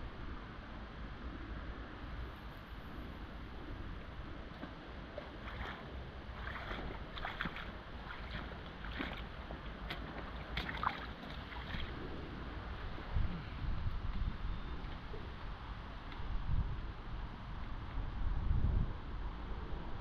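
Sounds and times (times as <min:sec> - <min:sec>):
wind: 0:00.0 - 0:20.0
river flowing: 0:02.1 - 0:13.2
boots splashing through water: 0:04.6 - 0:12.0.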